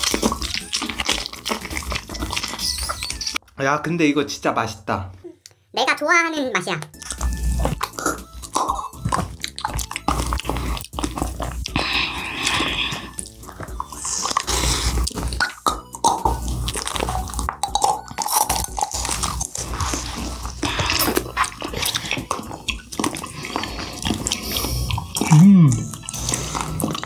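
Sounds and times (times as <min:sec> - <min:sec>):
wet chewing and sucking: 0:00.0 - 0:03.4, 0:06.9 - 0:27.0
background music: 0:00.0 - 0:05.0, 0:05.8 - 0:27.0.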